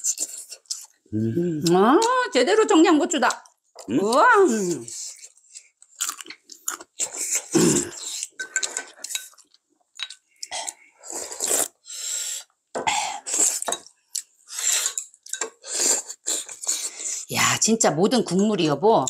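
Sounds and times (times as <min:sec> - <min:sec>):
chewing: 0:00.0 - 0:02.2, 0:03.3 - 0:11.8, 0:13.3 - 0:17.0
utensils clinking against bowls: 0:08.1 - 0:09.4, 0:14.7 - 0:15.6
slurping broth: 0:10.2 - 0:12.5, 0:14.5 - 0:17.3.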